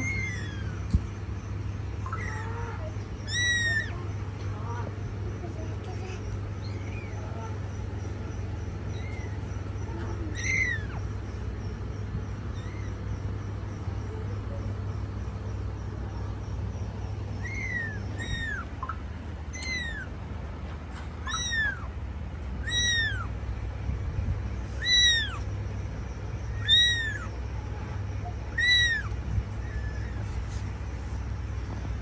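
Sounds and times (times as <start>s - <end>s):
kitten meowing: 0.0s - 1.2s, 2.0s - 5.0s, 8.8s - 11.2s, 12.4s - 13.0s, 17.3s - 20.2s, 21.2s - 21.9s, 22.6s - 23.4s, 24.7s - 25.5s, 26.5s - 27.3s, 28.2s - 30.6s
steady low hum: 0.0s - 32.0s.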